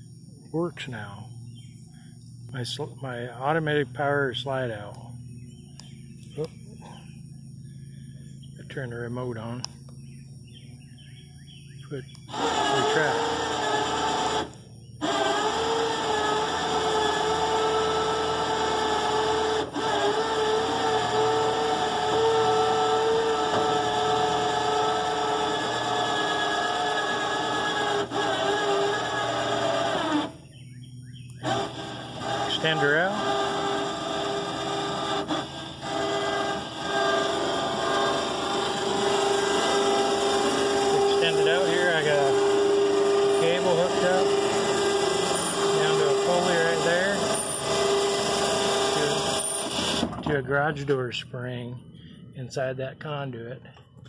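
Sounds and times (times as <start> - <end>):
electric winch whining: 10.0 - 51.0.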